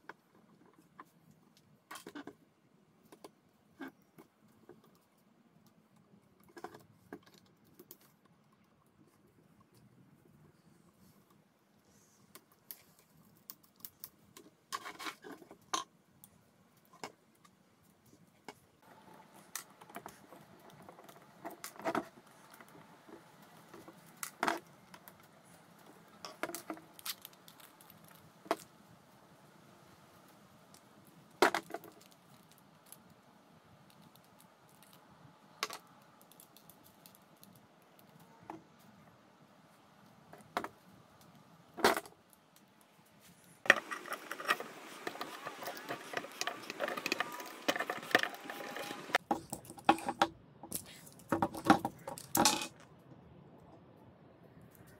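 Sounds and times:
screwdriver turning screws: 0:43.7 - 0:49.2.

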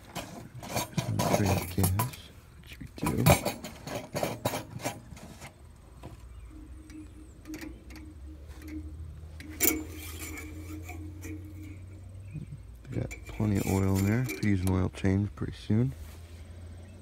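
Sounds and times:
dipstick clicking and scraping: 0:00.0 - 0:15.1
faint steady hum: 0:00.0 - 0:17.0
sharp clatter: 0:03.0 - 0:05.6, 0:06.8 - 0:14.9.

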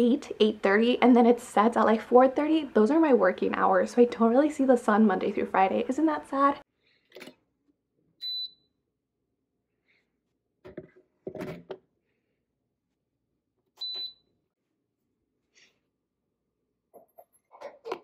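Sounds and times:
short electronic beeps: 0:08.2 - 0:08.6.

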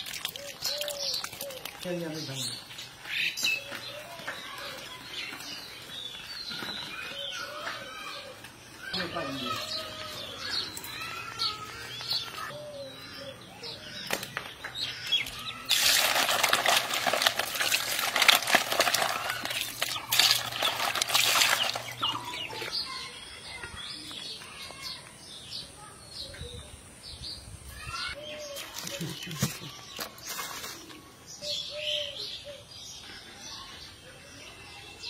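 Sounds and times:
fish flapping in a wicker basket: 0:00.0 - 0:02.0, 0:15.2 - 0:22.4
birds chirping: 0:00.0 - 0:35.0.

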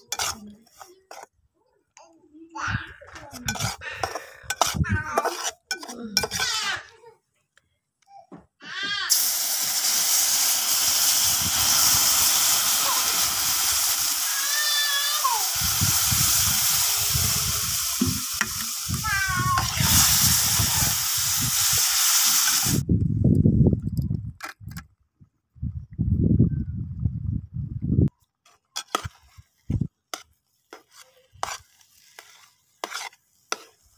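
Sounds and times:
metal spatula stirring: 0:00.0 - 0:01.4, 0:03.1 - 0:06.7, 0:28.4 - 0:33.9
water sizzling in a hot pan: 0:09.1 - 0:22.8, 0:30.6 - 0:33.9.

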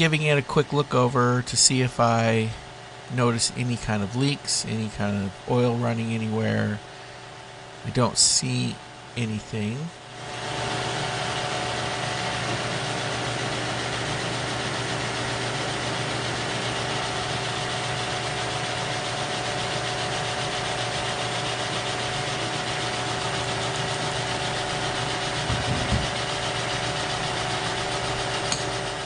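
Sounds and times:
milling machine running: 0:10.0 - 0:29.0
low thumps: 0:25.4 - 0:26.2.

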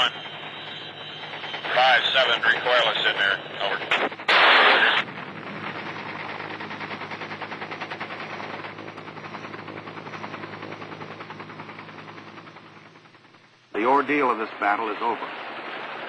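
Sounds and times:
helicopter low hum: 0:00.0 - 0:16.0
rapid gunfire rattle: 0:01.1 - 0:12.8
loud gun burst: 0:03.6 - 0:07.2.

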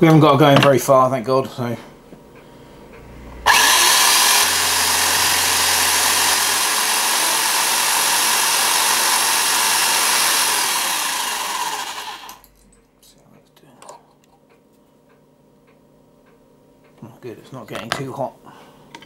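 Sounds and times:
drill winding down whine: 0:03.5 - 0:12.4
electric drill running: 0:03.5 - 0:12.4.

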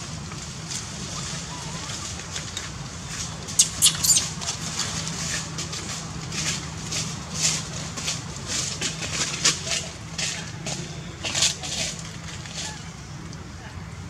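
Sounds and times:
infant monkey squeaking cries: 0:03.6 - 0:04.3.

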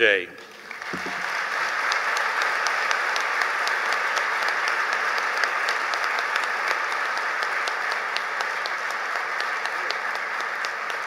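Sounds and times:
audience applauding: 0:00.4 - 0:11.0
single sharp claps: 0:00.7 - 0:02.0.

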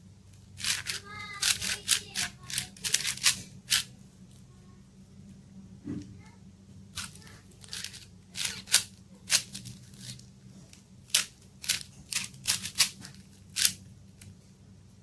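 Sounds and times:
puzzle cube layers clicking: 0:00.6 - 0:03.8.

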